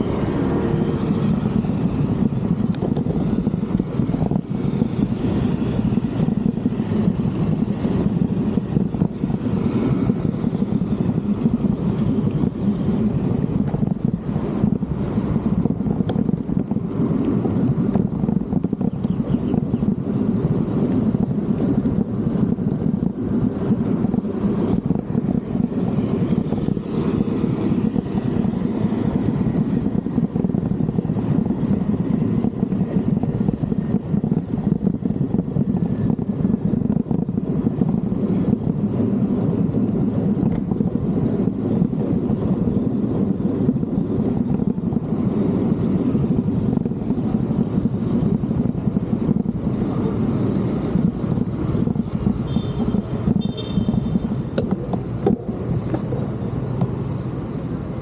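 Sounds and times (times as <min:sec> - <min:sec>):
road noise: 0:00.0 - 0:58.0
wind rumble on microphone: 0:00.0 - 0:58.0.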